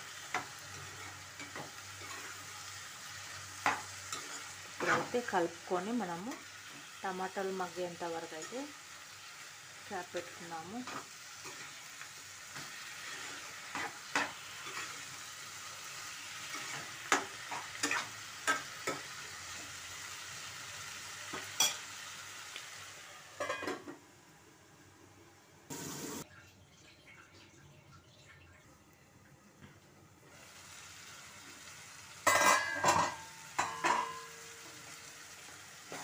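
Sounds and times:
food sizzling in a pan: 0.0 - 26.3, 30.1 - 36.0
spatula scraping a pan: 12.5 - 15.2.

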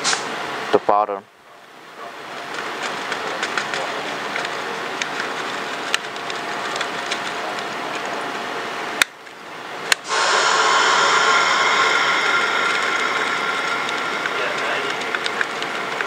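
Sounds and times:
steady background hum: 0.0 - 16.0
loud hum with whining tones: 9.9 - 16.0.

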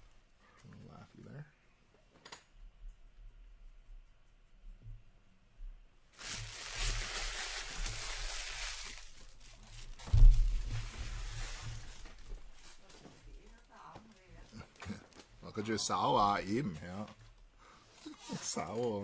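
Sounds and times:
cardboard packaging crinkling: 6.1 - 17.0, 18.0 - 19.0.

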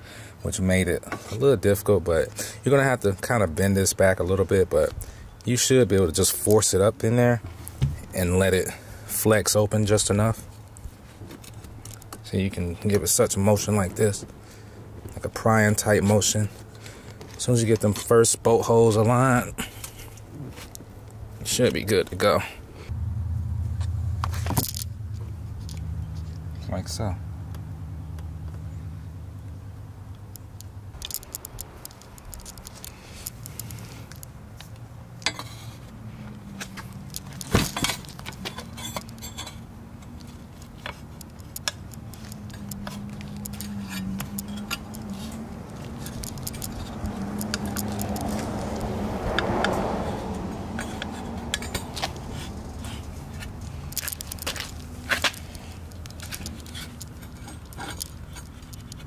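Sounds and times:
low steady hum: 22.7 - 49.3
metal bracket clinking: 35.2 - 35.8, 36.5 - 48.5.

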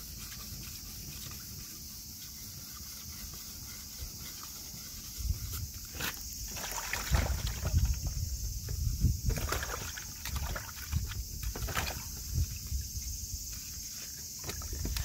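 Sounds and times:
water sloshing in plastic bucket: 5.8 - 12.8, 13.6 - 15.0
low rumble on microphone: 7.0 - 13.5.

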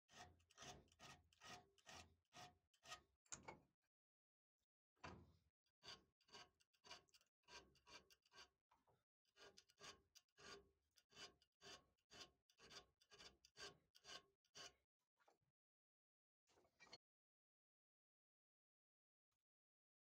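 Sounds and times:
file scraping screw threads: 0.1 - 3.0, 5.8 - 8.6, 9.3 - 14.8.

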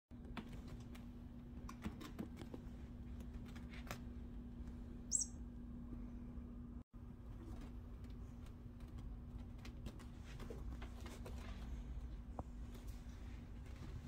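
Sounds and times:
low hum: 2.7 - 10.1
high chirp: 5.1 - 5.4.

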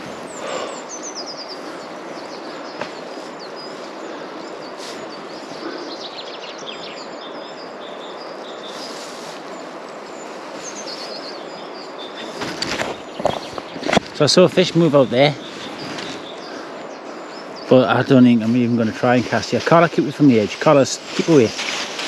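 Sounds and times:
river flowing: 0.0 - 22.0
small birds chirping: 0.0 - 22.0
rustling: 8.6 - 16.9, 18.3 - 22.0.

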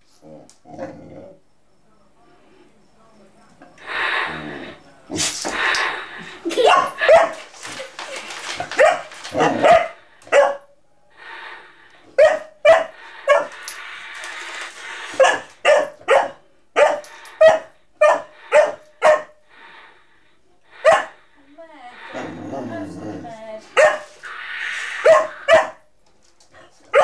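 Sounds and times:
puppy barking: 6.6 - 7.4, 8.8 - 10.7, 12.2 - 13.6, 15.2 - 19.4, 20.8 - 21.2, 23.7 - 24.1, 25.0 - 25.9.

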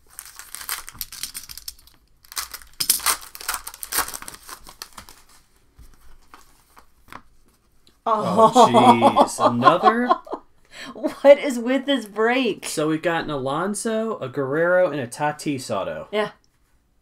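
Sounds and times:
wrappers crinkling and tearing: 0.0 - 7.1
cards rustling: 0.0 - 7.9.

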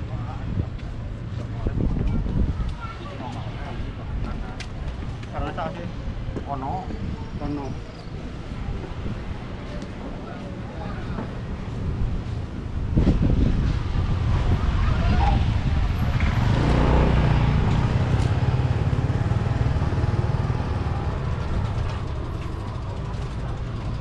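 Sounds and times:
street traffic rumble: 0.0 - 24.0
vehicle passing close: 13.8 - 24.0.

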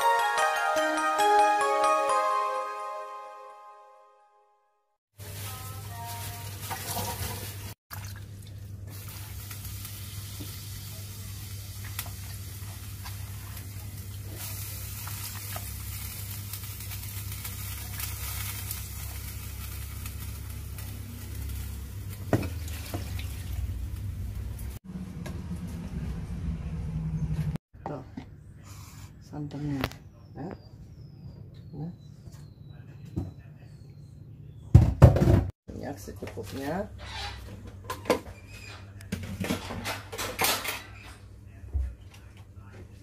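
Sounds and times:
water boiling in a pot: 5.2 - 24.8.

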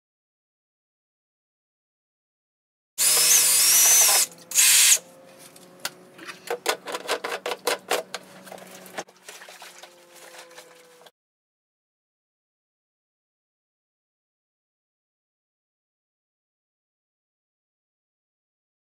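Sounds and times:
pump motor humming: 3.0 - 11.1.

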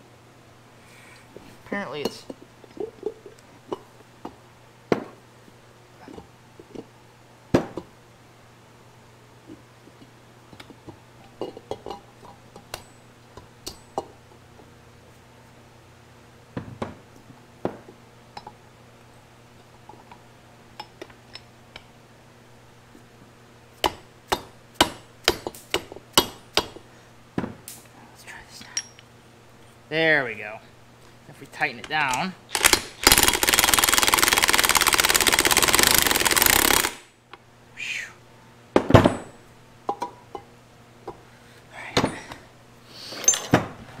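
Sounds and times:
steady low hum: 0.0 - 44.0
metal parts clinking: 43.2 - 43.6.

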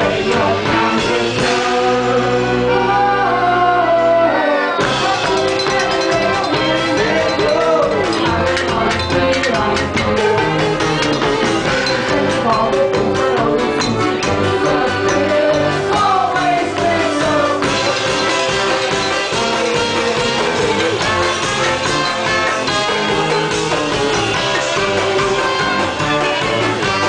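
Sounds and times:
woman singing: 0.0 - 10.6, 11.7 - 20.8
drums: 0.0 - 27.0.

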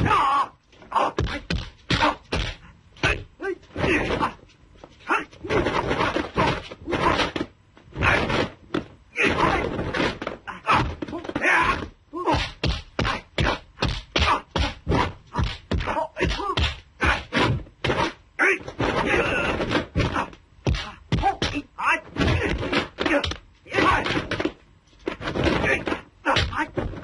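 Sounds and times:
fighters shouting and grunting: 0.0 - 24.5, 25.4 - 27.0
punch and kick smacks: 1.2 - 2.6, 9.2 - 21.6.

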